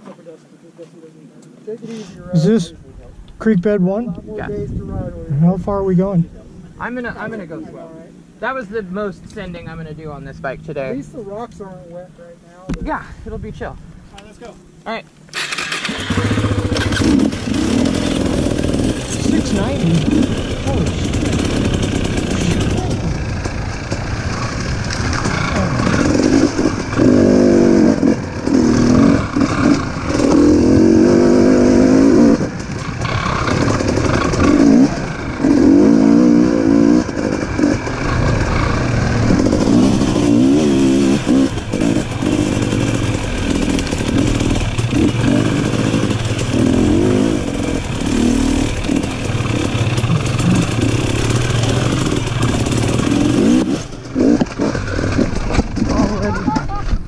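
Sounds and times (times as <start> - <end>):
motorcycle engine revving: 15.3 - 56.8.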